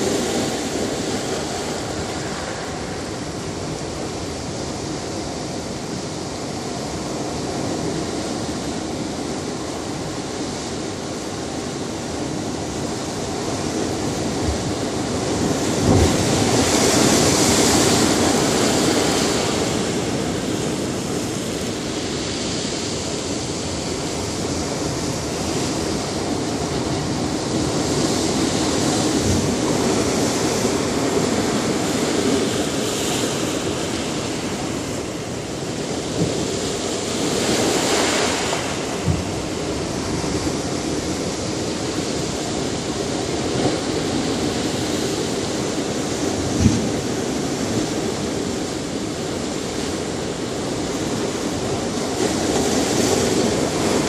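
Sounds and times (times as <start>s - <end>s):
surf washing through rocks: 0.0s - 54.0s
wave crashing with low thump: 46.6s - 47.1s.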